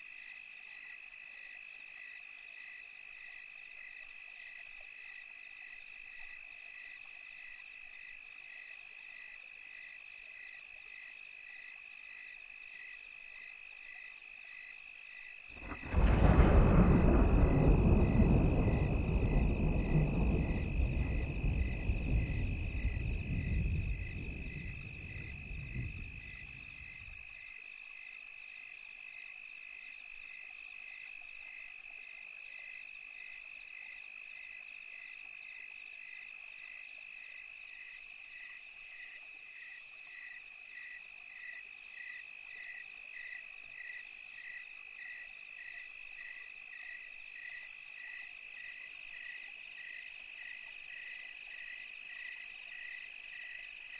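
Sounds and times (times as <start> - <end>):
cricket chirping: 0.0 - 53.9
high insect trill: 0.0 - 53.9
low rumble of thunder: 15.6 - 27.1.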